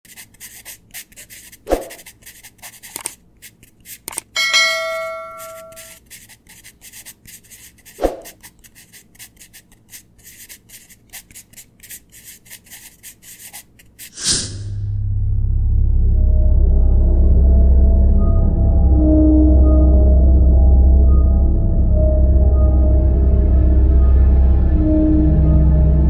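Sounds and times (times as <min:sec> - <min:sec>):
pen scratching on paper: 0:00.0 - 0:14.3
bell chime: 0:04.4 - 0:06.0.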